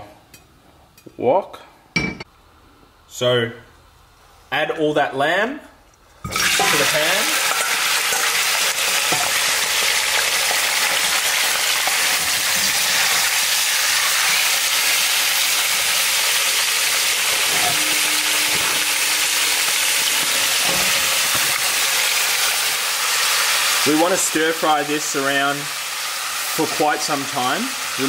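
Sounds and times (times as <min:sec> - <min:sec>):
meat sizzling in oil: 0:06.3 - 0:28.0.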